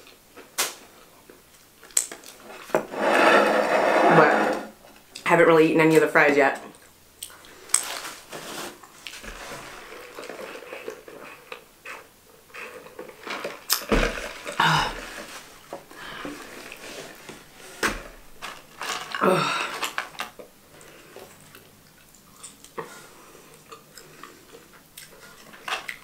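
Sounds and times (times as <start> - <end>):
chewing and mouth noises: 20.1 - 26.0.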